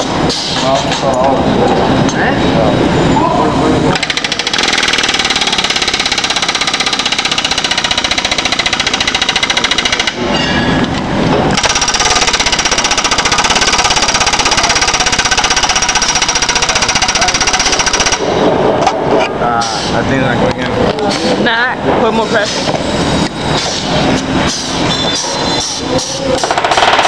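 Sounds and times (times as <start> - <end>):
pneumatic air hammer on sheet metal: 0.0 - 0.8, 3.9 - 18.4, 19.6 - 20.0, 22.4 - 27.0.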